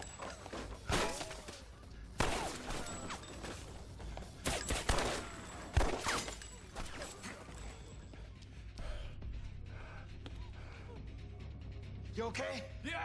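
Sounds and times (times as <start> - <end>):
bullets striking and debris scattering: 0.0 - 7.6
echoing gunshots: 2.2 - 3.0.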